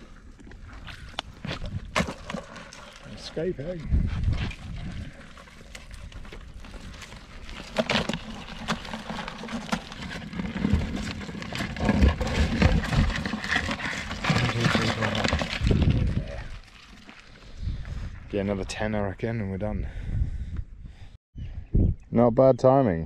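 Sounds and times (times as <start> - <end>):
crab pot knocks and rattles: 7.6 - 16.2.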